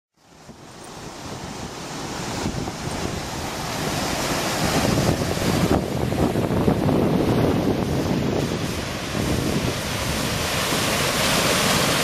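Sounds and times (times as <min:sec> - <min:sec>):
water rushing over rocks: 0:00.2 - 0:12.0.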